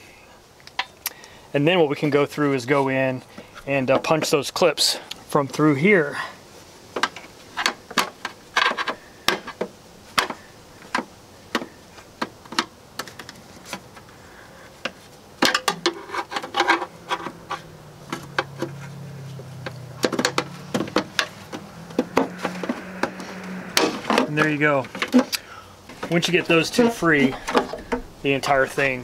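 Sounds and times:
low steady hum: 0:13.2 - 0:29.0.

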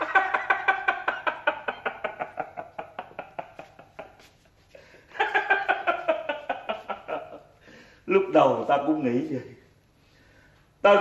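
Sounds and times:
man laughing staccato: 0:00.0 - 0:07.4.

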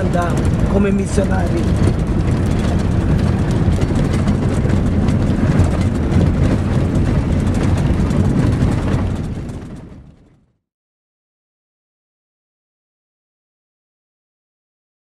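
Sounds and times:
vehicle rattles and knocks: 0:00.0 - 0:10.5
engine and tyre rumble: 0:00.0 - 0:10.6.

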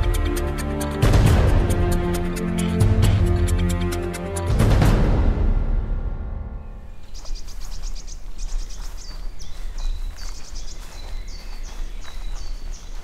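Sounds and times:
songbird singing: 0:06.6 - 0:13.0
footsteps on forest path: 0:06.8 - 0:13.0.

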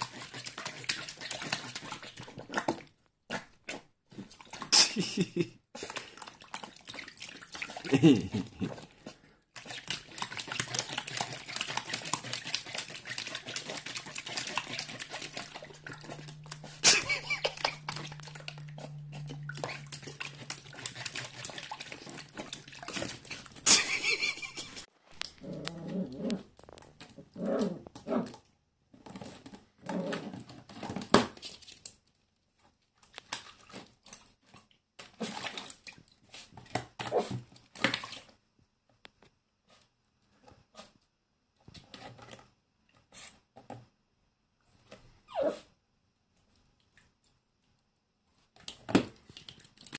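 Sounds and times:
puppy splashing water: 0:00.0 - 0:25.4, 0:32.9 - 0:38.4, 0:48.5 - 0:49.9.

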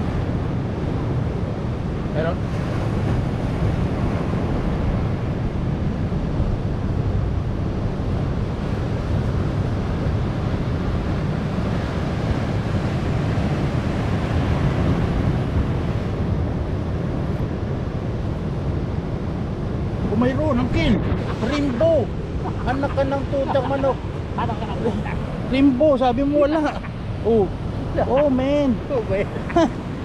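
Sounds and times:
wind rumbling on microphone: 0:00.0 - 0:30.0
surf breaking over rocks: 0:19.0 - 0:30.0.

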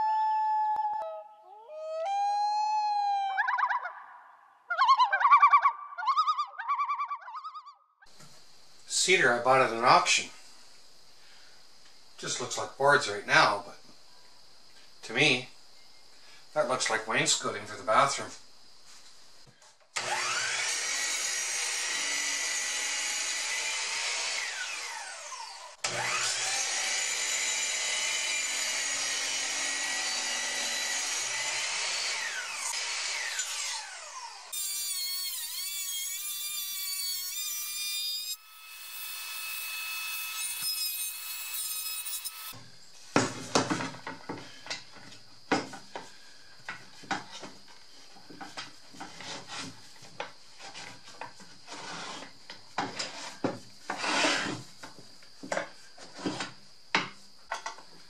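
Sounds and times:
miter saw motor whining: 0:20.0 - 0:23.1, 0:23.8 - 0:36.2
boards scraping on saw table: 0:48.4 - 0:54.7, 0:55.5 - 0:56.6.

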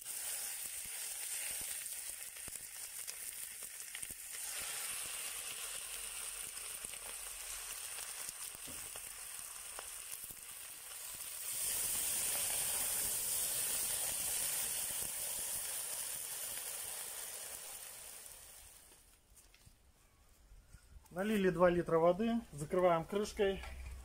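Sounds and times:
water hissing on hot metal: 0:00.0 - 0:19.1
chicken sizzling in pot: 0:00.0 - 0:19.2.

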